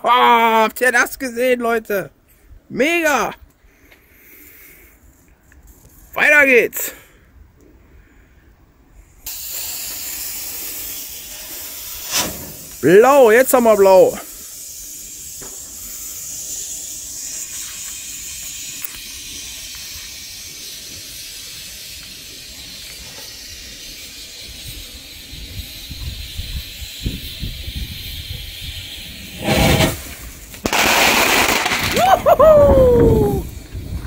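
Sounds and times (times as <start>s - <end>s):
firework ejection burst and rush: 9.2s - 34.0s
firework fountain hissing: 9.2s - 34.0s
wind rumbling on microphone: 24.6s - 30.8s, 31.7s - 34.0s.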